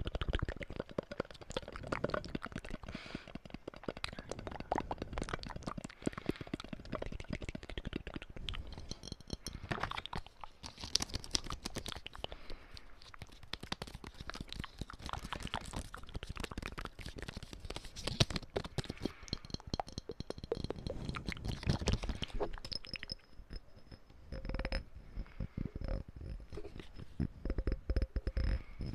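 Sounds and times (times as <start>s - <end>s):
mouth sounds: 0.0s - 8.8s.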